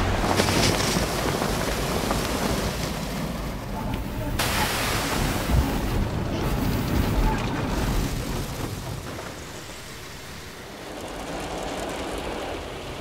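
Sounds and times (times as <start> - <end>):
car wash water spraying: 4.2 - 12.9.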